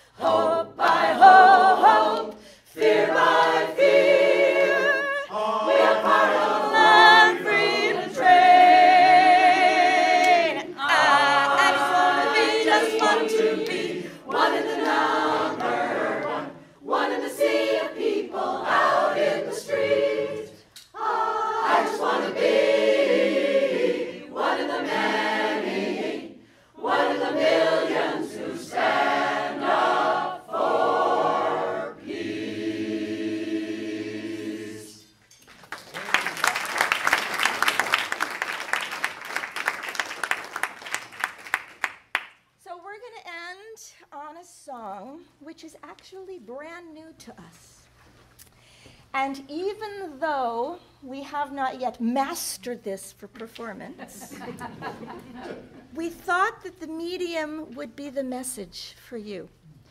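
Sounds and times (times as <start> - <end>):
mixed choir singing a cappella: 0.0 - 35.2.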